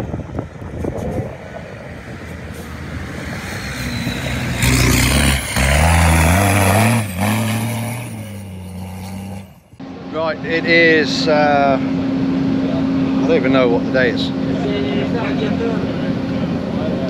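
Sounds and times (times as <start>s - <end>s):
truck diesel engine revving past: 1.2s - 9.7s.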